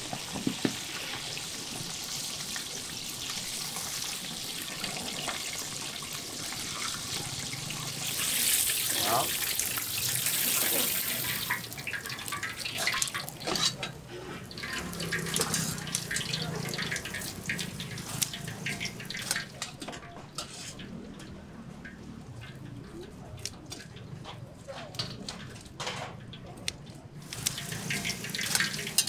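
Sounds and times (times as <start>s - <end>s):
hot oil sizzling: 0.0s - 19.8s, 27.2s - 29.0s
metal tongs clicking on pan: 17.9s - 19.5s, 26.6s - 29.0s
scissors snipping crispy food: 17.9s - 19.5s, 26.6s - 29.0s.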